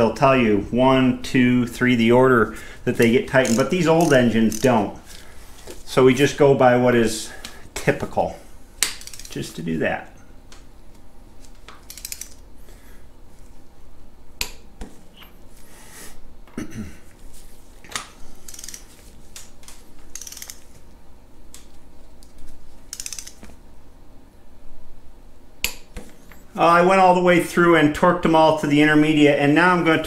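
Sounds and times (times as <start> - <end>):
sharp metallic clicks: 3.0 - 4.8
torque wrench ratcheting: 3.3 - 4.8, 8.9 - 9.3, 11.9 - 12.4, 18.4 - 18.8, 20.1 - 20.6, 22.9 - 23.4.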